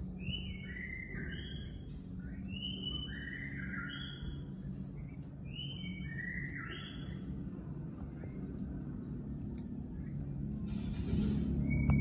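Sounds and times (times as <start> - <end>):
low steady hum: 0.0 - 12.0
peafowl whistled calls: 0.2 - 4.5, 5.5 - 7.2.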